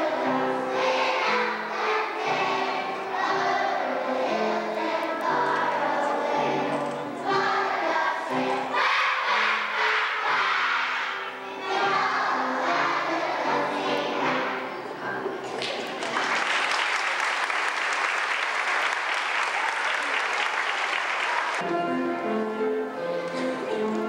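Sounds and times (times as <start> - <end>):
group of voices singing: 0.0 - 14.5.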